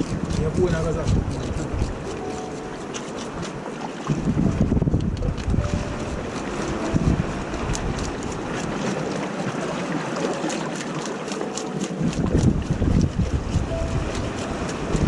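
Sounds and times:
seawater splashing in rock pool: 0.0 - 4.5, 5.3 - 15.0
wind rumbling on microphone: 0.0 - 10.2, 11.6 - 15.0
small crackling splashes: 5.4 - 14.8.

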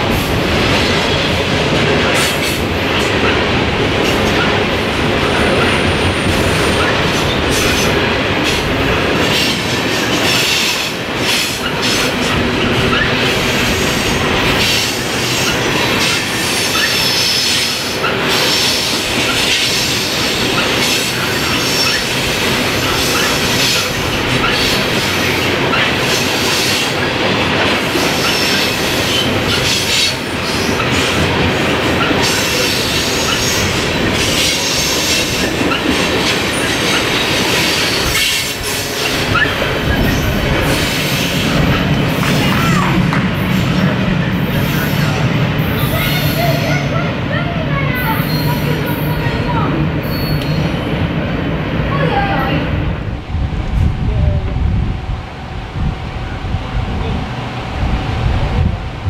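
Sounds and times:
freight train wheels rumbling: 0.0 - 59.0
faint high wheel squeal: 50.0 - 50.8.

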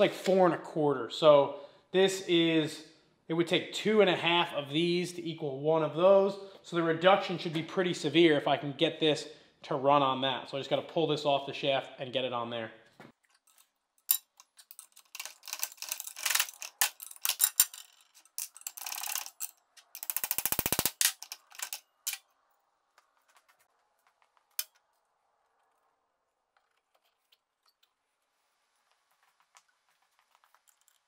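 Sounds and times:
metal scraping and clanking: 13.4 - 20.2
fast metal rattle: 14.1 - 22.2.

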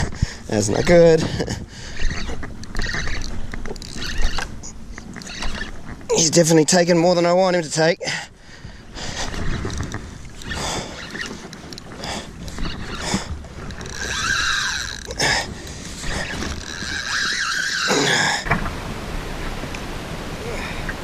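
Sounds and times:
water noise: 0.0 - 21.0
wind: 0.0 - 21.0
fishing reel drag buzzing: 1.8 - 5.8, 9.2 - 18.2
knocks against a kayak: 18.4 - 18.8.

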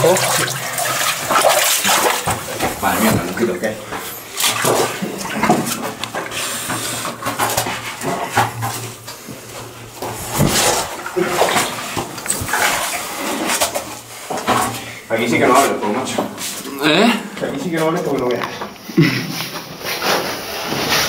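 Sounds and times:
footsteps splashing through water and mud: 0.0 - 6.3, 10.0 - 13.9.

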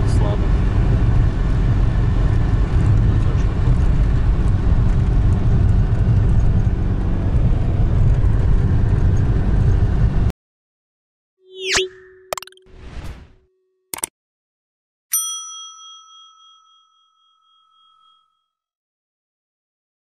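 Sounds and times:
car engine and road noise: 0.0 - 10.3
bright ding: 11.5 - 12.7, 15.1 - 18.2.

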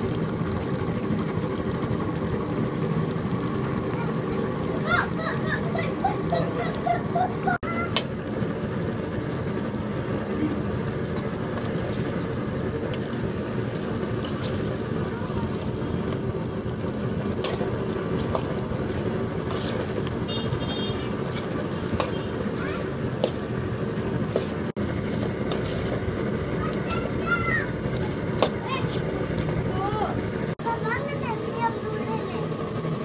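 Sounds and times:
steel ladle scraping a pot: 19.4 - 22.6, 24.3 - 26.0.

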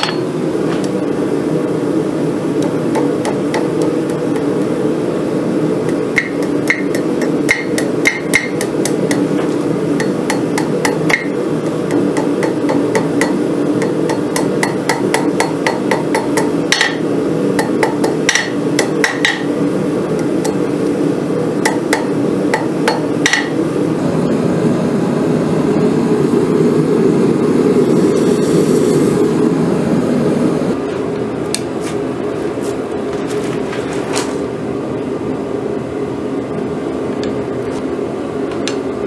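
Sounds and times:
hammer striking steel on anvil: 0.0 - 0.3, 5.9 - 9.4, 10.0 - 17.0, 17.6 - 19.6, 21.6 - 23.6.

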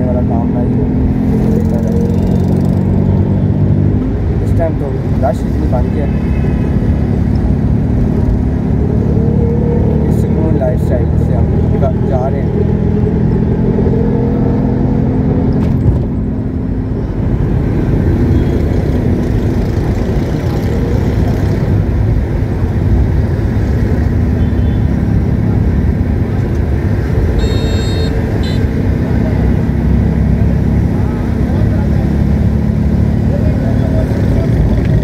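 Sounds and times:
car engine humming: 0.0 - 35.0
road noise: 0.0 - 35.0
short high-pitched tones: 27.4 - 28.6.

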